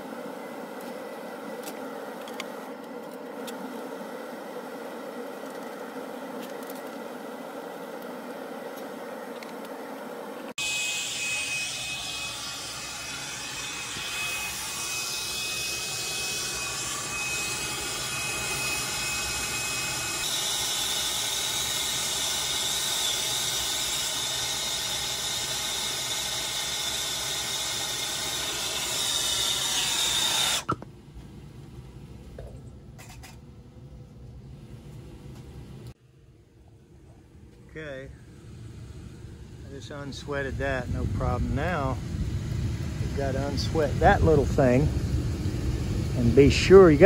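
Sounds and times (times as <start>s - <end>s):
torch flame hissing: 38.0s - 47.0s.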